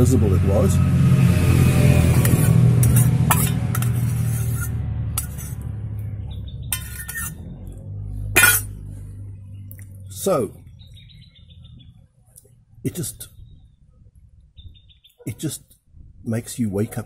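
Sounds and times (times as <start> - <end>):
low rumble: 0.2 - 14.9
metal spoon scraping metal pot: 2.1 - 5.7, 6.6 - 7.5, 8.3 - 8.9.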